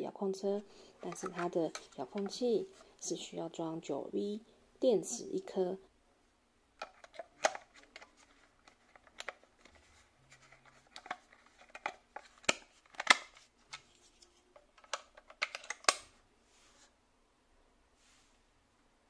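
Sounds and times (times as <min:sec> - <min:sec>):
plastic clicks and taps: 0:01.0 - 0:02.4, 0:06.8 - 0:09.4, 0:10.9 - 0:13.8, 0:14.6 - 0:16.0.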